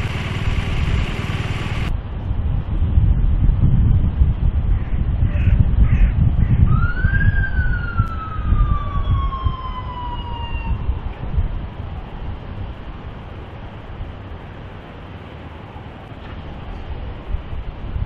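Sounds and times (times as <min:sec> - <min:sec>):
heavy vehicles rumbling: 0:00.0 - 0:02.7, 0:09.8 - 0:18.0
wind: 0:00.0 - 0:18.0
police siren wail: 0:06.7 - 0:11.1.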